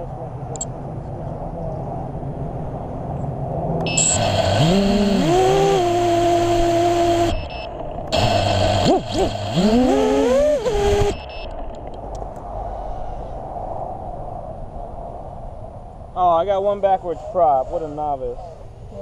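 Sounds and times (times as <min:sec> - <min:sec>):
drone motors whining: 0:03.8 - 0:12.4.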